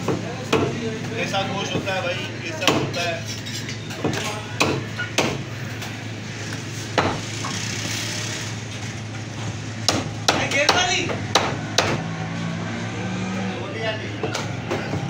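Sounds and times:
cleaver chopping on wooden block: 9.9 - 12.0.

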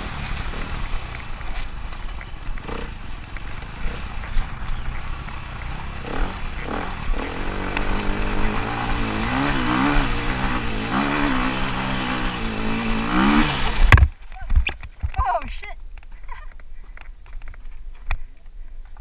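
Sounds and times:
dirt bike engine revving: 2.6 - 14.0.

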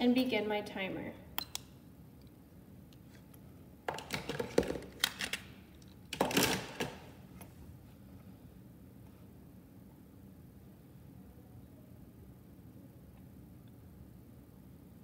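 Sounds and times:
clicking and rustling handling noise: 2.2 - 7.6.

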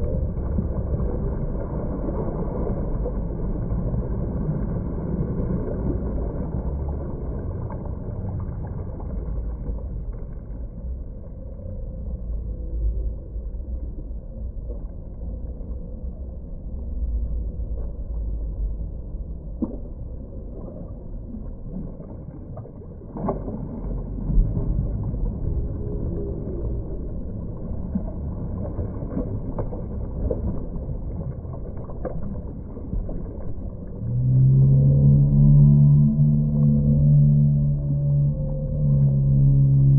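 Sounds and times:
muffled pool water sloshing: 0.0 - 39.9
small splashes: 19.5 - 34.7.

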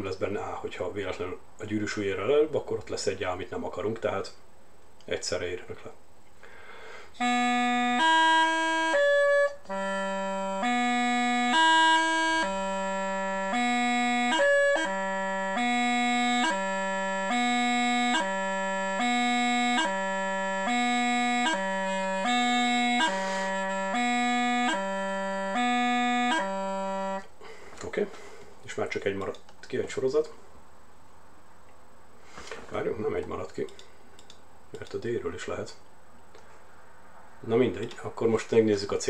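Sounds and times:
bagpipe practice chanter: 6.9 - 27.3.

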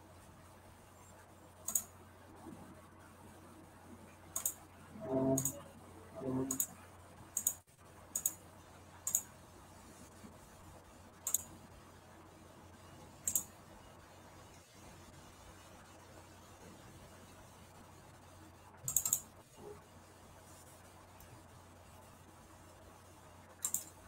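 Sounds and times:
computer mouse clicking: 1.6 - 2.0, 4.3 - 4.6, 5.3 - 5.6, 6.4 - 8.4, 9.0 - 9.3, 11.2 - 11.5, 13.2 - 13.6, 18.8 - 19.4, 23.6 - 24.0.

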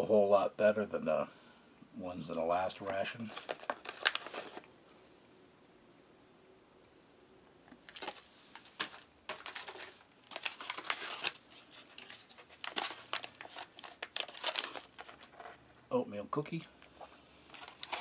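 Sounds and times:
foil pouches crinkling: 2.8 - 4.7, 7.8 - 15.7, 16.7 - 18.0.

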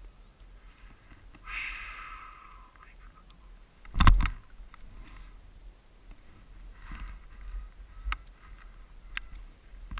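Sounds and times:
faint rustling of gear: 0.4 - 1.5, 4.1 - 9.9
camera bump: 3.9 - 4.4.

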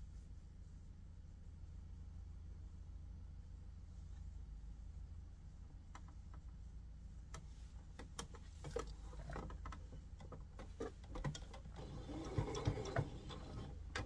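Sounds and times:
sewing machine stitching: 10.6 - 14.0.

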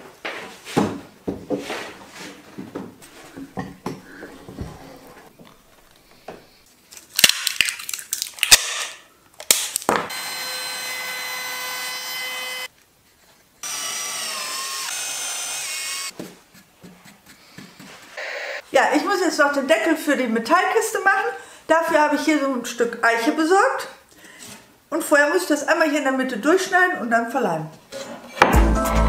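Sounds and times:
router cutting wood: 10.1 - 12.7, 13.6 - 16.1.

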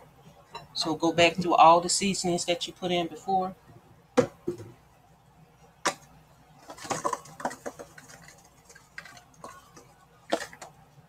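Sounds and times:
seasoning shaker rattling: 6.6 - 10.7.

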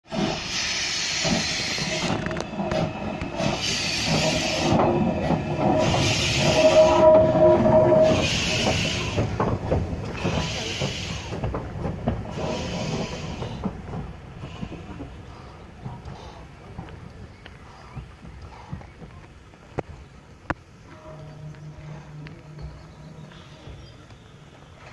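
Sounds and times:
steam locomotive hissing beats: 0.0 - 19.1, 20.2 - 24.9
wheels clicking over rail joints: 0.0 - 24.9
held ringing tone: 20.9 - 24.4.

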